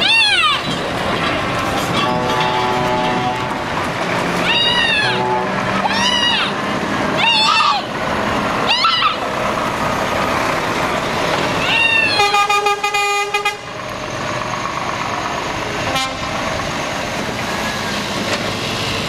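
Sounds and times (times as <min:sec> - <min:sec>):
trucks pulling away: 0:00.0 - 0:19.0
truck horn blast: 0:01.7 - 0:03.9, 0:04.7 - 0:06.0, 0:12.1 - 0:13.8, 0:15.9 - 0:16.4.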